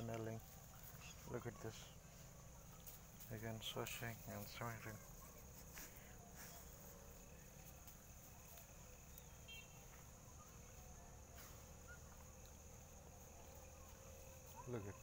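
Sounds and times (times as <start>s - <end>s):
high insect drone: 0.0s - 15.0s
soft rustle: 0.0s - 15.0s.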